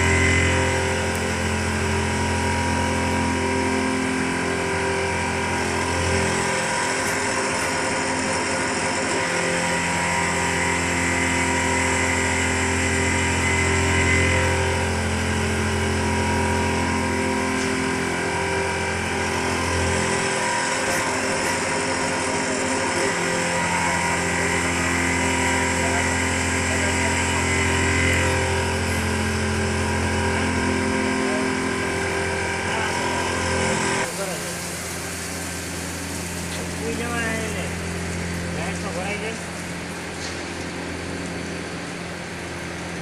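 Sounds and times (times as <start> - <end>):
milling machine hum: 0.0 - 43.0.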